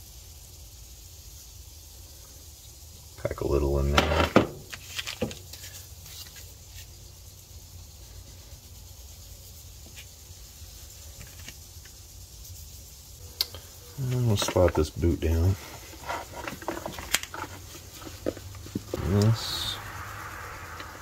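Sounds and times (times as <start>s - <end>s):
steady low hum: 12.0s - 21.0s
faint clicks and scraping: 15.6s - 19.9s.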